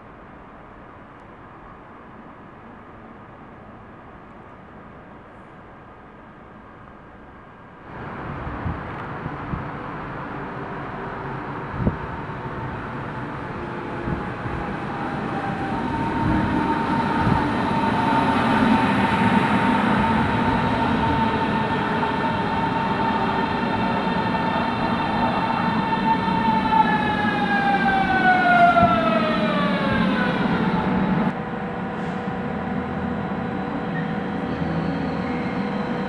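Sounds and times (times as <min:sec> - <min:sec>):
train wheel rumble: 0:07.9 - 0:36.0.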